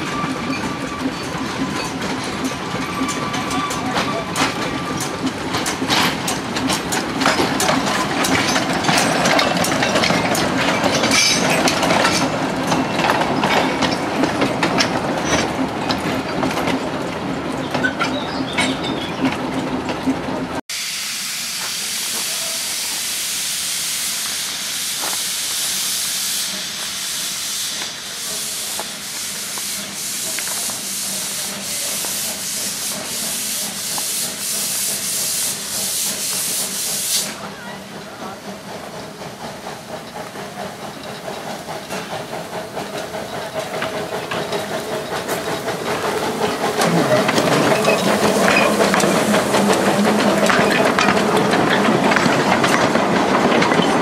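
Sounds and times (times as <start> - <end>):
train wheels clicking over rail joints: 0.0 - 20.6, 21.5 - 54.0
steam hiss: 20.7 - 52.6.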